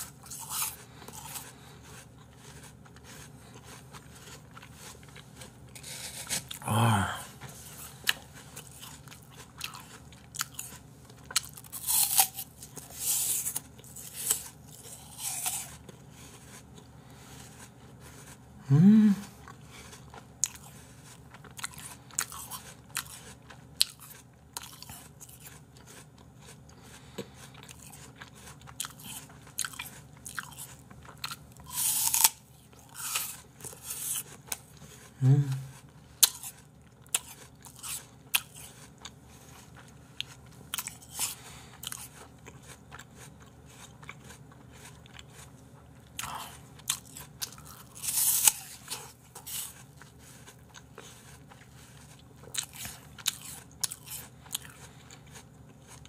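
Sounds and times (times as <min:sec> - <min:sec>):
apple crunching: 0:00.0 - 0:56.0
brief rising vocal sound: 0:18.7 - 0:19.3.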